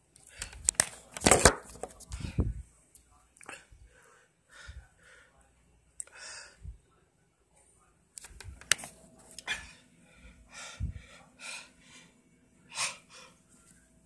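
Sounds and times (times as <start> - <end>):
person breathing hard: 3.5 - 5.4, 6.0 - 6.8, 9.4 - 13.5.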